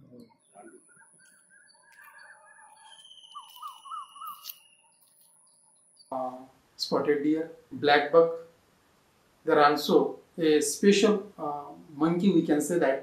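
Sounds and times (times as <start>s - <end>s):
faint bird chirps: 0.0s - 6.5s
bird calling rising falling note: 1.4s - 5.0s.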